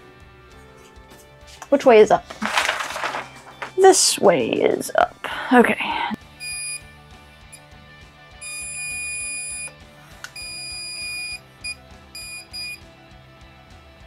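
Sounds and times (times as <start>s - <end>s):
stud finder beeping: 6.4s - 6.8s, 8.4s - 12.8s.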